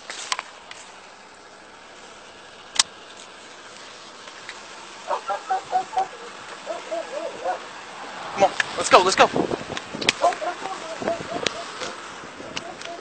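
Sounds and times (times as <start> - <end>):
handling noise with clicks: 0.0 - 1.0, 9.7 - 13.0.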